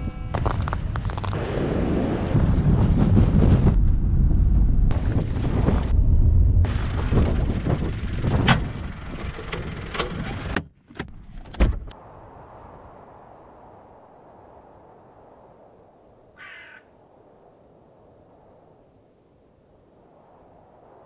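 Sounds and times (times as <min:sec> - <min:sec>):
car driving rumble: 0:03.0 - 0:11.9.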